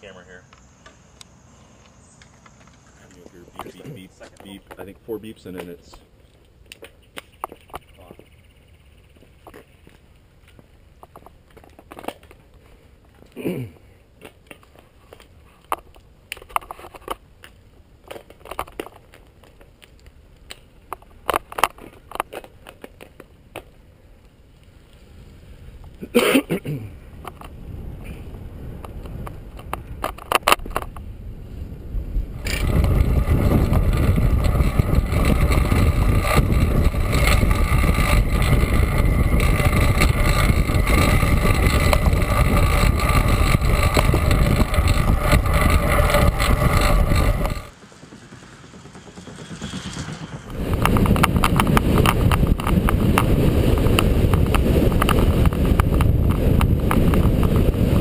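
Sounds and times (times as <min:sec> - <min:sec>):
wind rushing over microphone: 0:26.9 - 0:47.8, 0:49.4 - 0:58.0.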